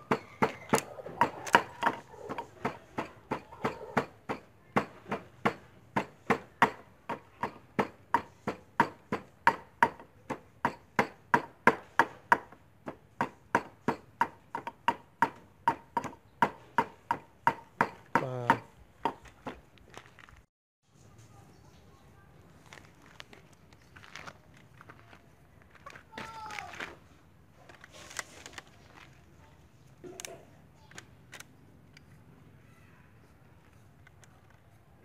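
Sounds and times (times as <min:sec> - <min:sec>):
wooden pestle pounding in mortar: 0:00.0 - 0:19.2.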